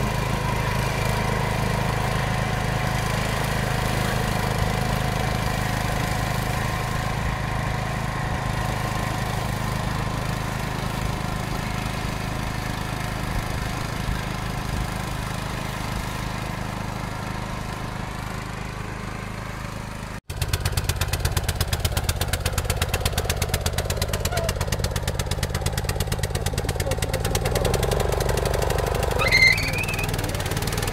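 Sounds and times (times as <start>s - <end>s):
small petrol engine running: 0.0s - 30.9s
rapid pulsing engine beat: 24.5s - 30.9s.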